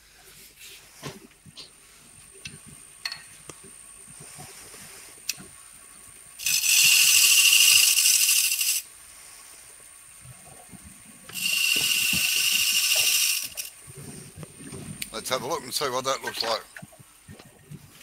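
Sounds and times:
gouge hissing cut on lathe: 6.4s - 8.9s, 11.3s - 13.7s.

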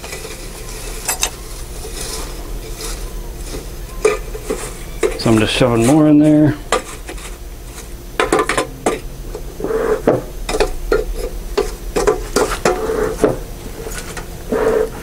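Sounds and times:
dry hay rustling: 0.0s - 8.0s.

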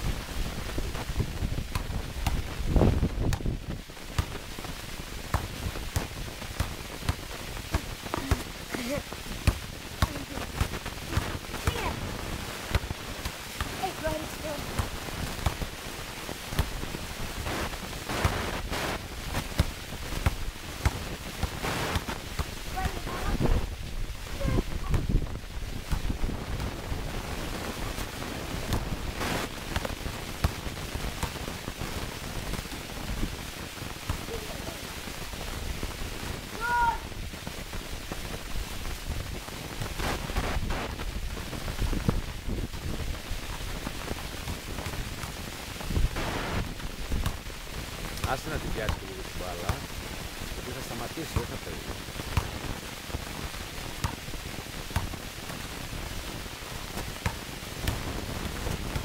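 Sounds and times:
wind on microphone: 0.0s - 6.6s, 16.6s - 45.1s, 45.8s - 47.7s
steady hiss: 0.0s - 59.0s
basketball bouncing on paving: 0.7s - 17.0s, 19.3s - 31.7s, 41.4s - 49.9s, 52.2s - 54.3s, 54.9s - 59.0s.

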